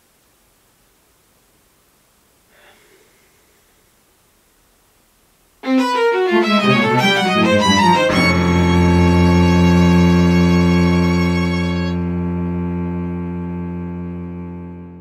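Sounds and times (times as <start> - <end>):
bowed string music: 5.6 - 15.0.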